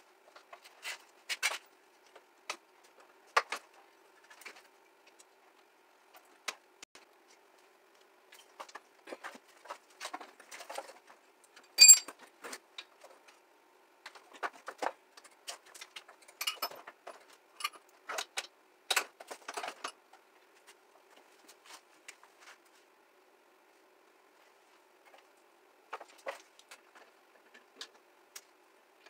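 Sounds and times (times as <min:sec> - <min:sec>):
metal tools clinking and rattling: 0:11.8 - 0:12.1, 0:16.3 - 0:16.9
sharp ringing metallic clink: 0:11.8 - 0:12.1.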